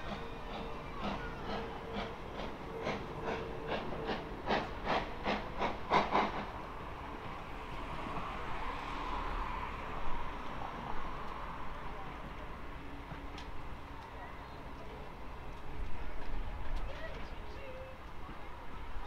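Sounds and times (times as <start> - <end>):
steam locomotive chuffing: 0.0 - 6.7
steam hiss: 0.1 - 6.5.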